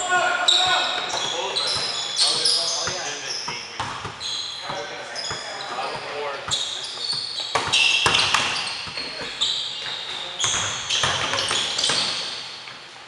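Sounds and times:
sneakers squeaking on gym floor: 0.4s - 12.9s
basketball bouncing: 3.8s - 5.4s, 7.5s - 12.2s.

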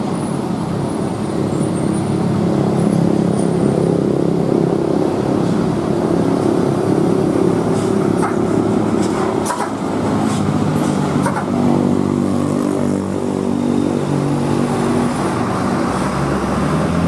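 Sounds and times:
bus diesel engine running: 0.0s - 17.0s.

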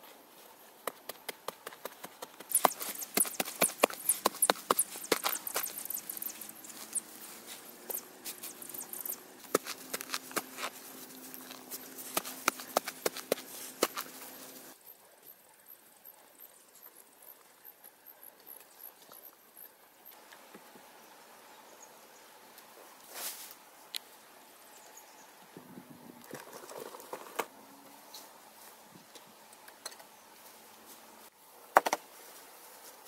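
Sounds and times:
footsteps on grass: 0.8s - 14.8s.

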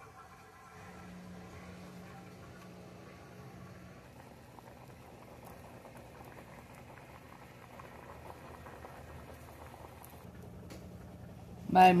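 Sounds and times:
vegetables boiling in a saucepan: 0.0s - 12.0s.

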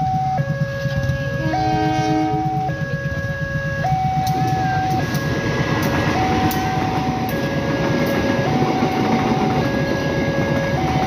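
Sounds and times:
passenger train rumbling: 0.0s - 11.0s
railroad crossing alarm: 0.0s - 11.0s.

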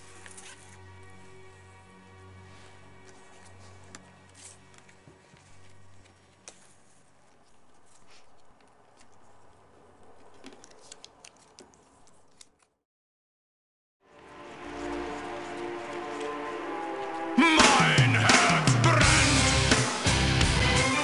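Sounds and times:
rustling: 0.0s - 1.7s, 2.4s - 12.8s.

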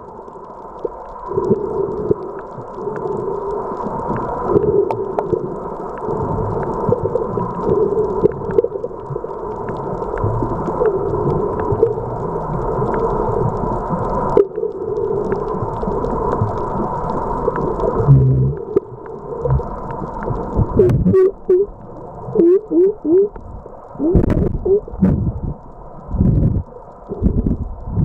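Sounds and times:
gurgling blips and clicks: 0.0s - 28.0s
underwater droning hum: 0.0s - 28.0s
water sloshing and bubbling: 0.0s - 28.0s
heavy low thumps: 24.0s - 25.6s, 26.2s - 26.6s.

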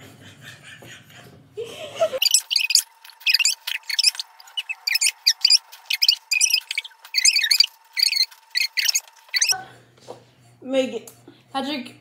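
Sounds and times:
muffled laughter: 0.3s - 2.2s
squeaky sped-up voice: 2.2s - 9.6s.

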